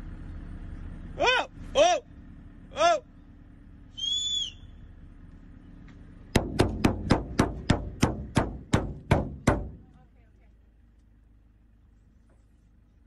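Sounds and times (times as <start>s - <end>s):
high whistle-like note: 3.9s - 4.8s
sharp knocks: 6.3s - 9.9s.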